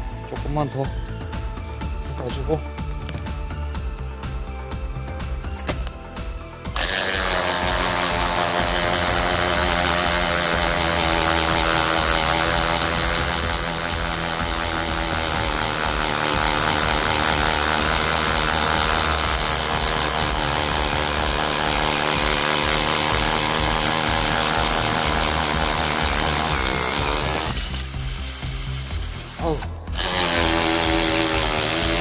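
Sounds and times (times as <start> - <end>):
hammer drill boring into concrete: 6.8 - 32.0.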